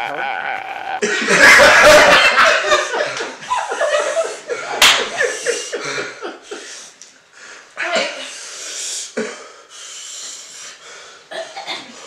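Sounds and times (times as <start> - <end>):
people laughing: 1.0 - 6.7
sharp slap: 4.8 - 5.2.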